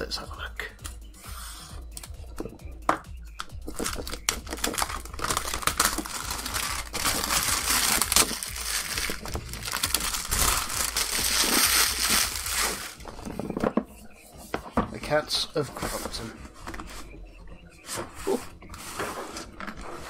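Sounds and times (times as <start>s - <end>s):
packaging crinkling: 3.7s - 13.4s.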